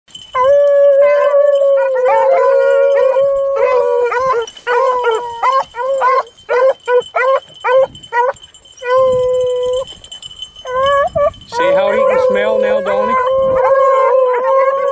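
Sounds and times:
beagles baying: 0:00.4 - 0:14.9.

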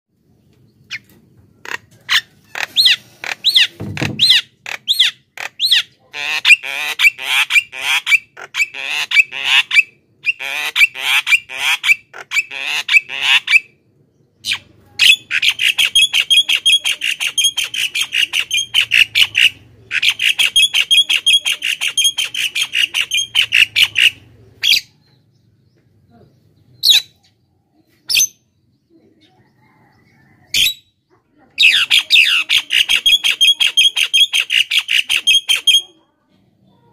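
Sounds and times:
myna calling: 0:14.5 - 0:25.0, 0:31.6 - 0:36.0.

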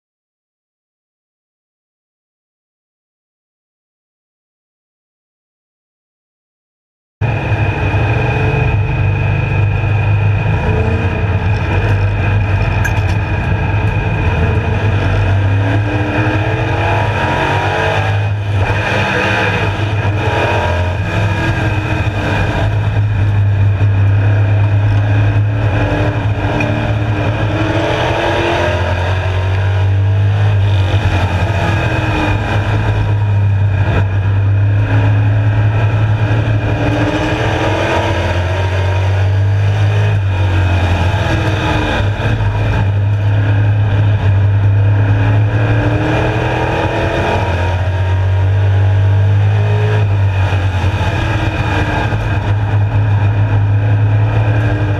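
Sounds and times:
race car engine revving: 0:07.2 - 0:54.9.

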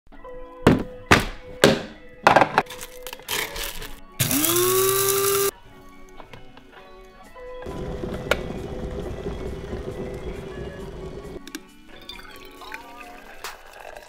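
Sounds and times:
electric coffee grinder whine: 0:04.2 - 0:05.5, 0:07.7 - 0:11.4.

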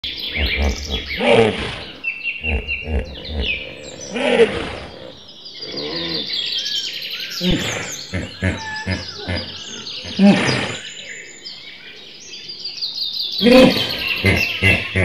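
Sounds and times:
low animal calls: 0:00.0 - 0:06.5, 0:07.4 - 0:10.8, 0:13.4 - 0:15.0
birds chirping: 0:00.0 - 0:15.0.

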